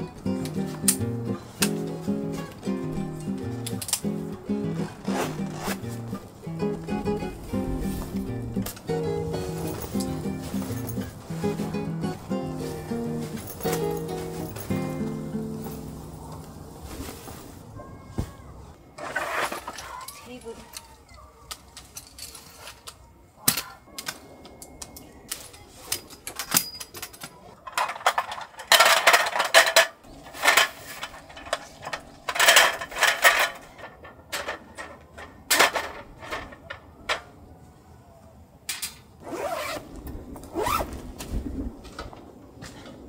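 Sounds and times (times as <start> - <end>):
camp table frame clattering: 0.0 - 16.5, 25.5 - 37.3.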